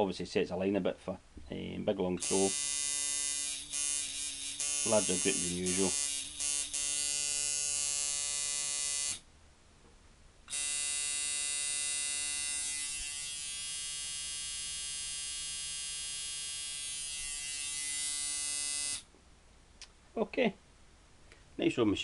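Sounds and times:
tattoo machine buzzing: 0:02.2 - 0:09.2, 0:10.5 - 0:19.1.

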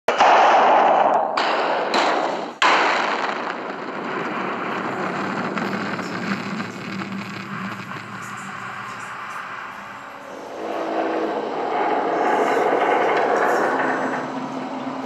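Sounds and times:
explosive bang: 0:00.1 - 0:14.4
long rushing noise: 0:03.0 - 0:15.0.

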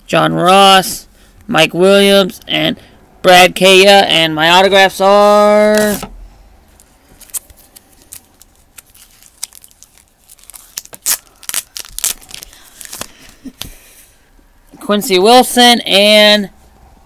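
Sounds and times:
foil wrappers and cards rustling: 0:06.8 - 0:13.8.

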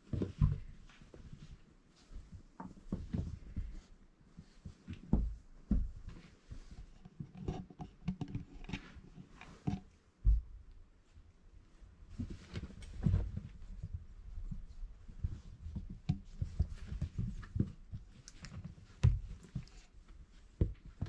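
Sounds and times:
puppies scuffling on blankets: 0:00.0 - 0:07.1, 0:12.0 - 0:21.0
soft knocks and scrabbling: 0:00.0 - 0:10.8, 0:11.7 - 0:21.0.

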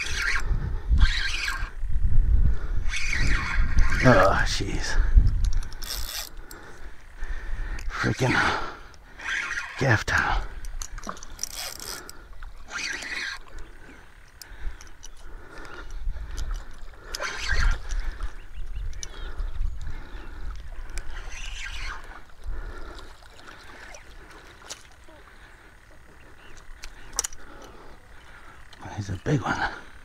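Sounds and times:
fish splashing in shallow water: 0:19.5 - 0:28.8.

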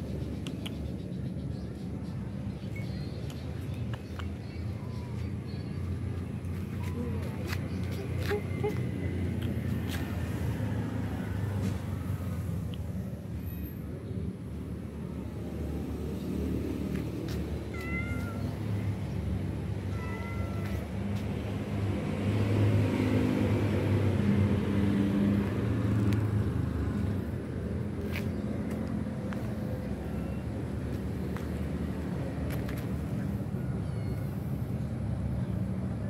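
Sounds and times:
low engine rumble: 0:00.0 - 0:36.0
cats meowing: 0:17.6 - 0:18.7, 0:19.8 - 0:21.0.

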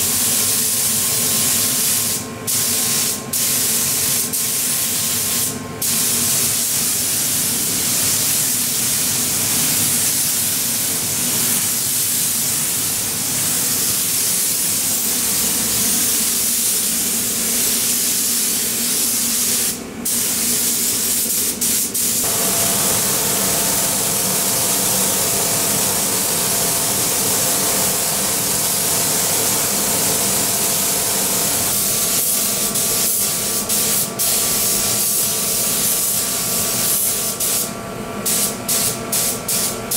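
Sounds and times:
paint spray gun hissing: 0:00.0 - 0:39.9
steady low hum: 0:22.2 - 0:35.0.

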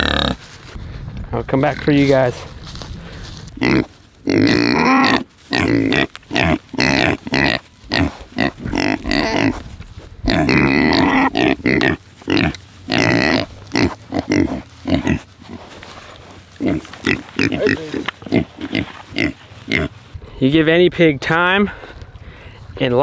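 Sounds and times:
pigs grunting: 0:00.0 - 0:00.4, 0:03.5 - 0:15.8, 0:16.5 - 0:20.0.

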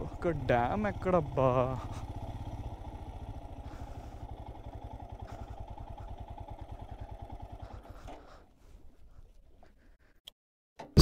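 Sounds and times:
motorcycle engine running: 0:00.0 - 0:08.4.

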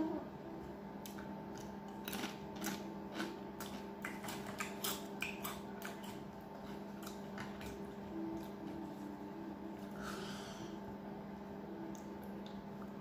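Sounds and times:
steady low hum: 0:00.0 - 0:13.0
wet chewing clicks and smacks: 0:01.0 - 0:08.6.

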